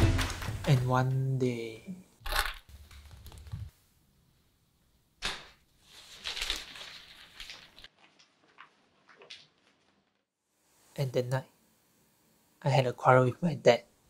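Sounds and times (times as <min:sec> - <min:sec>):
newspaper rustling: 0:05.3 - 0:10.3.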